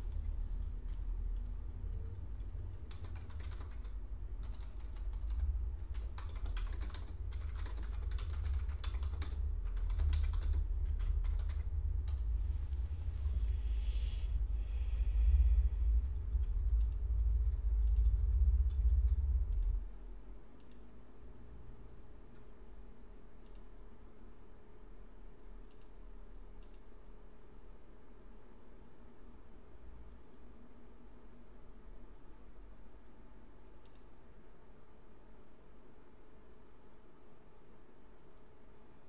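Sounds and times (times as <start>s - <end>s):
keyboard typing clicks: 0.0s - 12.2s, 16.4s - 19.8s, 20.6s - 20.9s, 23.4s - 23.7s, 25.6s - 26.0s, 26.6s - 26.9s, 33.8s - 34.1s
low steady hum: 0.0s - 39.0s.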